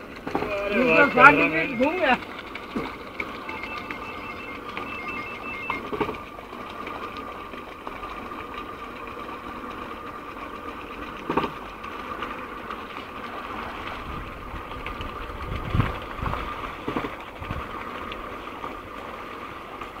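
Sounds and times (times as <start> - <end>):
gearbox whirring and whining: 0.0 - 12.6.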